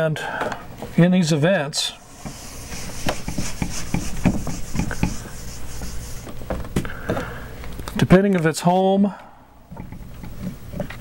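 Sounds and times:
eraser rubbing on whiteboard: 2.0s - 6.4s
eraser knocking against board: 2.2s - 5.9s.

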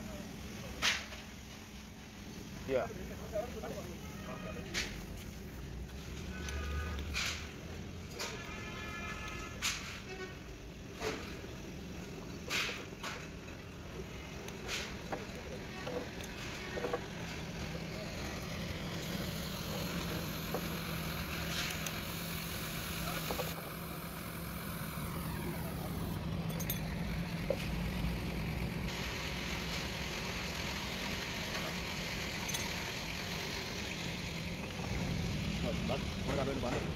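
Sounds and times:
engine humming: 10.7s - 36.9s.

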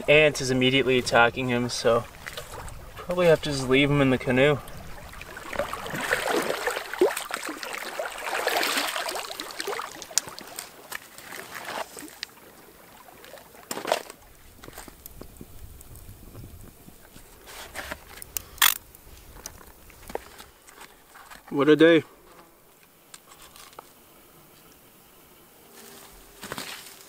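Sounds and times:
water splashing and sloshing: 0.8s - 21.5s.

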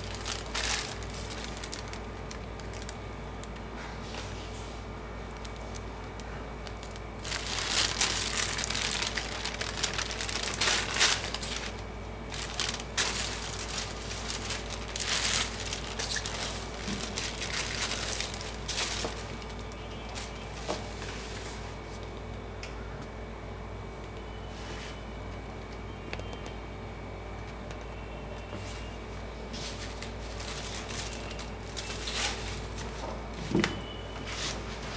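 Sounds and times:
tissue paper crinkling: 0.0s - 3.0s, 5.3s - 22.0s, 29.5s - 33.0s
steady low hum: 0.0s - 34.9s.

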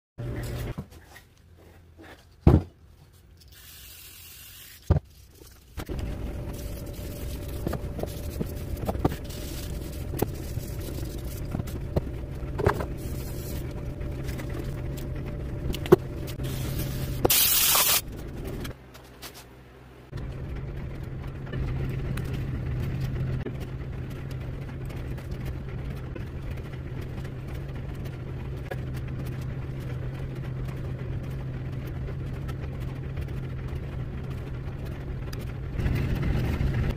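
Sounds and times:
low machine hum: 0.2s - 36.9s
compressed air hissing: 16.4s - 18.0s.

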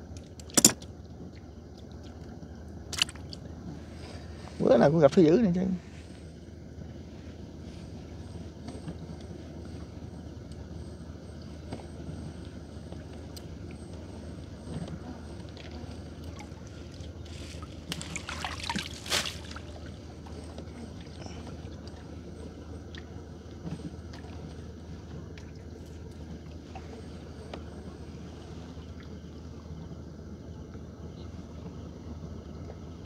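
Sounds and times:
water trickling and sloshing: 0.0s - 4.7s, 11.4s - 30.0s
steady low hum: 0.0s - 33.0s
water splashing: 15.5s - 22.0s.

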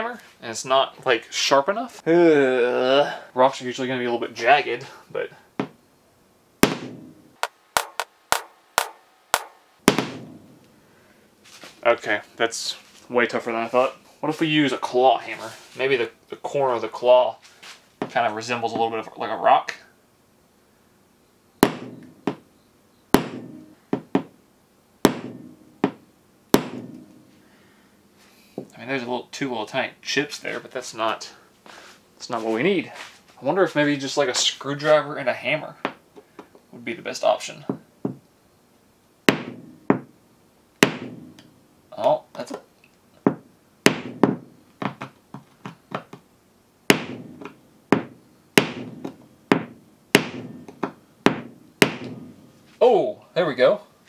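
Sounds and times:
hammer striking windshield glass: 6.6s - 7.2s, 7.8s - 10.5s, 21.6s - 22.4s, 23.2s - 24.3s, 25.1s - 26.0s, 26.6s - 27.3s, 39.3s - 40.1s, 40.8s - 41.5s, 43.3s - 45.0s, 46.9s - 52.4s.

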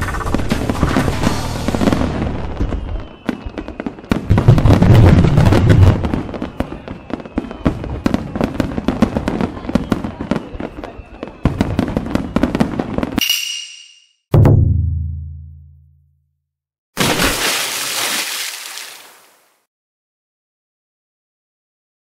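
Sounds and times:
fireworks bursting and crackling: 0.0s - 13.2s.

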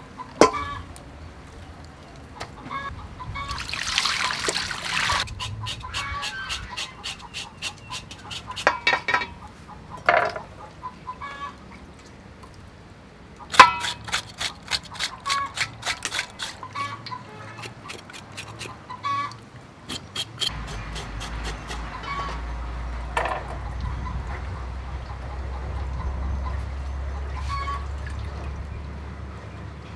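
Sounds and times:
water sloshing: 3.4s - 5.3s
knife scraping meat skin: 5.2s - 8.7s, 13.5s - 16.8s, 17.6s - 18.8s, 19.9s - 21.9s.

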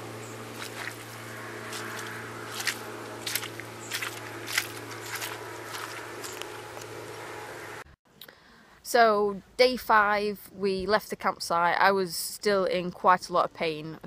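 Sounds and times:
footsteps on wet grass: 0.0s - 7.4s
low steady hum: 0.0s - 14.0s.

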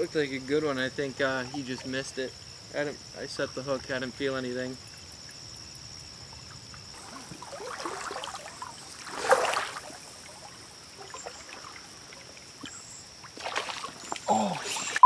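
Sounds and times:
crickets chirring: 0.0s - 15.0s
wading through shallow water: 6.9s - 15.0s.

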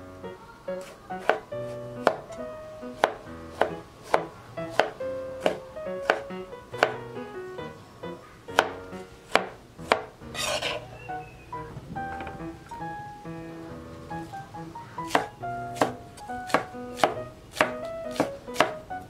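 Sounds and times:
knife chopping on wooden board: 0.8s - 2.2s, 3.0s - 7.0s, 8.5s - 10.8s, 15.0s - 18.8s.

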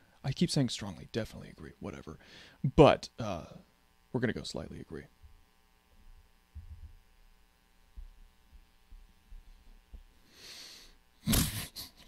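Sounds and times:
faint room hum: 0.0s - 12.0s
person breathing: 2.2s - 2.6s, 10.2s - 11.0s
soft low thumps: 6.2s - 7.2s, 7.9s - 10.1s.

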